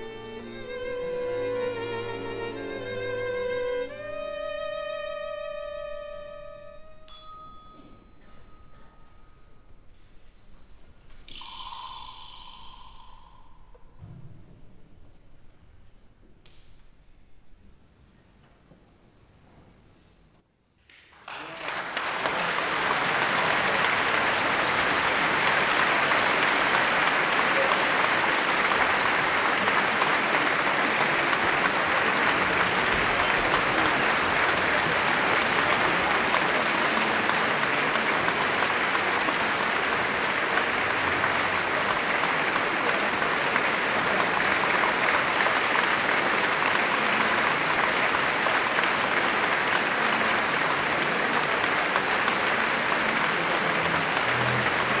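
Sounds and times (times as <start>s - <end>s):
large audience applauding: 20.9s - 55.0s.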